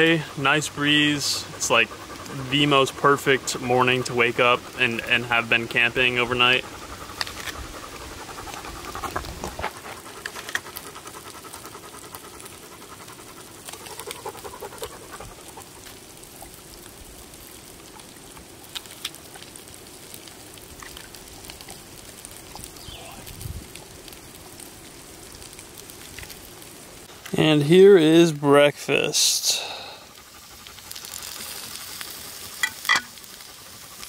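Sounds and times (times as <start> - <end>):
low hiss: 0.0 - 10.2, 13.2 - 34.0
dog panting: 0.2 - 16.1, 29.8 - 34.0.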